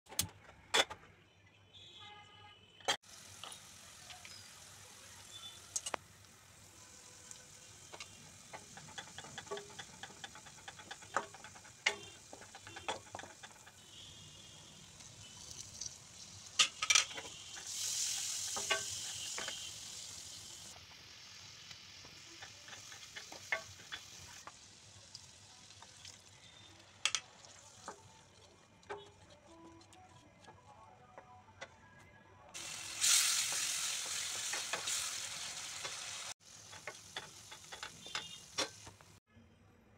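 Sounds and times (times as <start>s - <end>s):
loud sizzle: 3.0s - 28.4s, 32.6s - 39.2s
onions frying in oil: 3.0s - 29.3s, 32.6s - 39.2s
spatula scraping pan: 8.0s - 14.4s.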